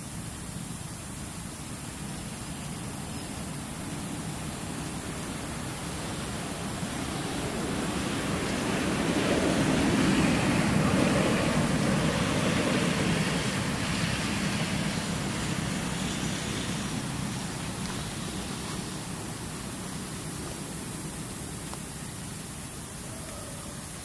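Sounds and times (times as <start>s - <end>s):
steady background hiss: 0.0s - 24.0s
vehicle passing: 3.8s - 21.7s.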